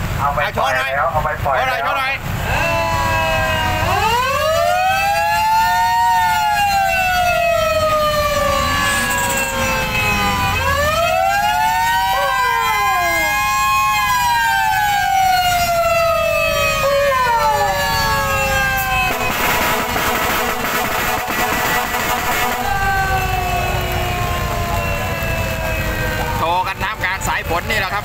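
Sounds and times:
short falling tones: 0:18.9 - 0:25.7
truck horn chord sweeping: 0:19.1 - 0:26.1.

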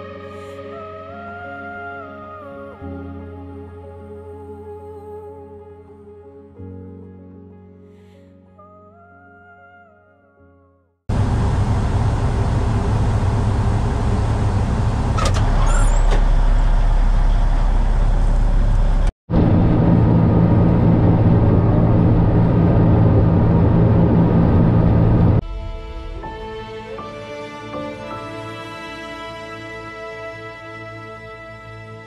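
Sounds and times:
bulldozer diesel engine running: 0:11.1 - 0:25.4
high squeaks: 0:15.2 - 0:16.3.

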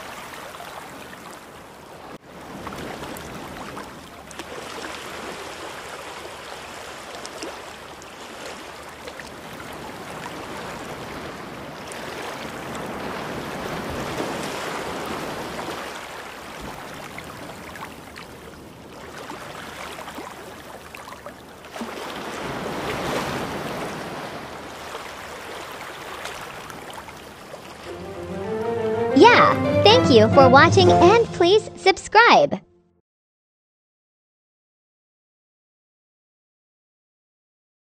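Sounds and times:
ocean waves rushing: 0:00.0 - 0:18.1, 0:21.7 - 0:31.7.

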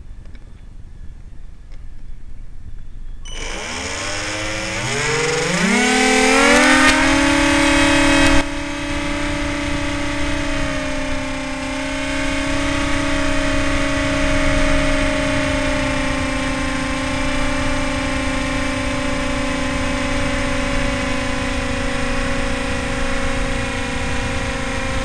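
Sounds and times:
electric motor and propeller whine: 0:03.3 - 0:25.0.

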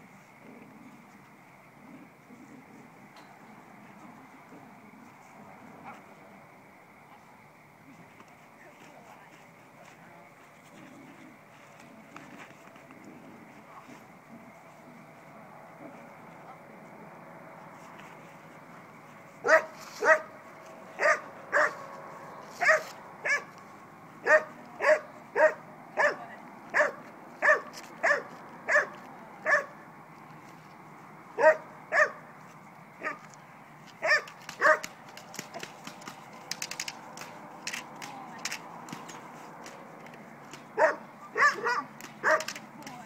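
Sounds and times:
dog barking: 0:19.4 - 0:20.3, 0:21.0 - 0:21.8, 0:22.6 - 0:23.5, 0:24.2 - 0:29.7, 0:31.4 - 0:32.2, 0:34.0 - 0:34.9, 0:40.8 - 0:42.5.

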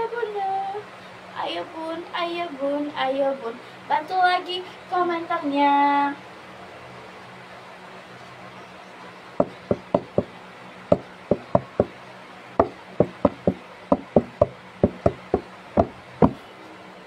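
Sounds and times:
fingers tapping on phone: 0:09.4 - 0:10.3, 0:10.9 - 0:11.9, 0:12.6 - 0:16.4.

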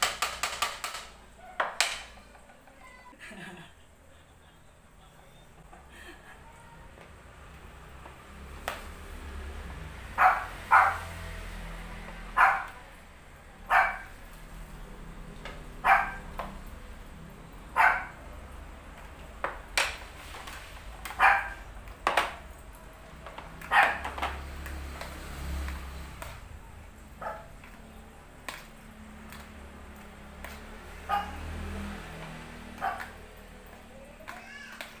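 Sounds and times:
dog barking: 0:01.4 - 0:01.8, 0:10.2 - 0:11.2, 0:12.3 - 0:12.8, 0:13.7 - 0:14.1, 0:15.8 - 0:16.3, 0:17.8 - 0:18.2, 0:21.1 - 0:21.6, 0:23.7 - 0:24.0, 0:27.2 - 0:27.5, 0:31.0 - 0:31.4, 0:32.8 - 0:33.2.

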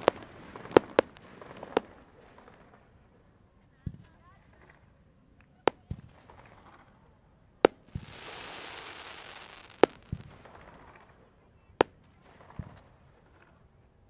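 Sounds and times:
fireworks bangs: 0:00.0 - 0:03.1, 0:05.7 - 0:13.6.

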